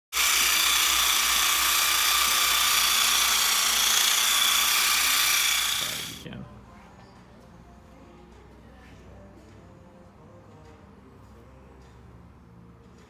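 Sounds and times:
massage gun motor buzz: 0.2 - 6.2.

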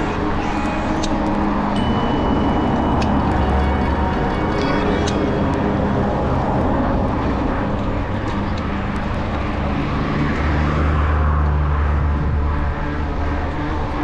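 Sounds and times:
low engine-like drone: 0.0 - 14.0
wind and bicycle riding noise: 0.0 - 14.0.

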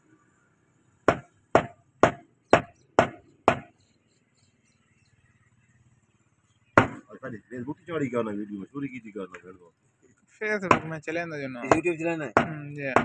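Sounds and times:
cleaver chopping on wooden block: 1.1 - 3.7, 6.8 - 7.0, 10.7 - 11.0.

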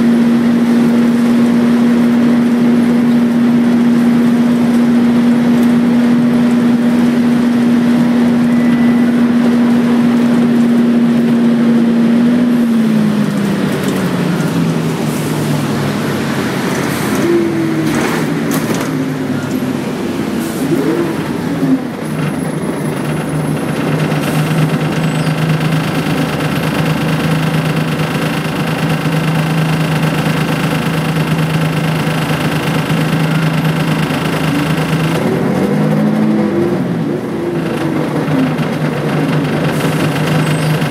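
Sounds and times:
bus diesel engine droning: 0.0 - 40.9
rattles: 22.1 - 36.2, 37.6 - 40.9.

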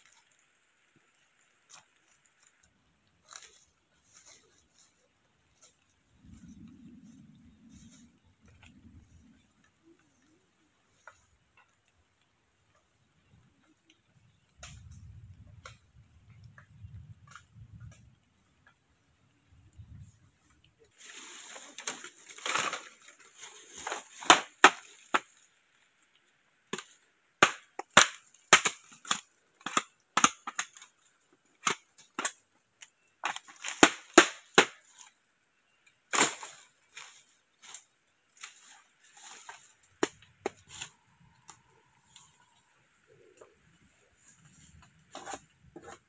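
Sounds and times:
leaf litter and brush rustling: 0.0 - 11.4, 20.0 - 27.1, 30.6 - 46.0
machete chopping bamboo: 23.8 - 25.4, 26.7 - 30.9, 33.2 - 35.1, 36.1 - 37.1.

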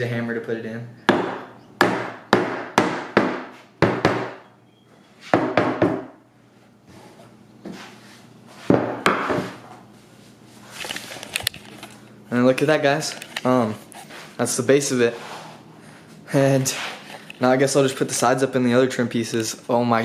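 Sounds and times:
hammer knocking wooden panel: 1.1 - 4.4, 5.4 - 6.2.

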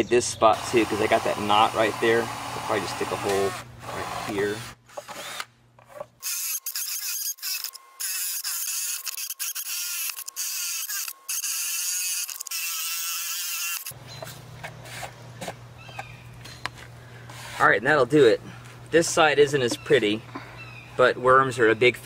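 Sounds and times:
electric drill boring through wood: 0.6 - 5.4, 6.2 - 14.0.

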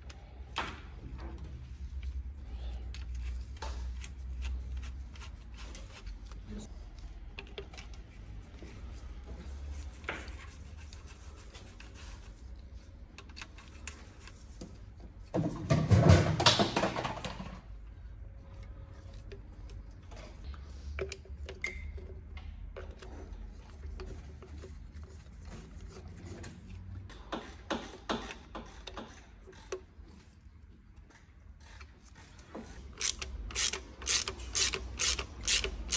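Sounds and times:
clicks and scraping of parts: 12.9 - 14.8, 19.1 - 35.9.

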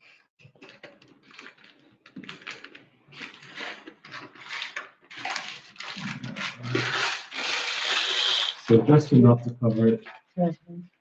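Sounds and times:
paper rustling and crinkling: 0.4 - 9.0.

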